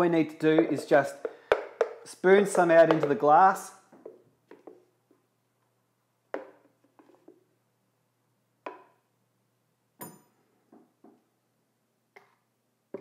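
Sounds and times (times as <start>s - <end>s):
spoon knocking and scraping jug: 0.0s - 4.9s
glass clink: 10.0s - 10.4s.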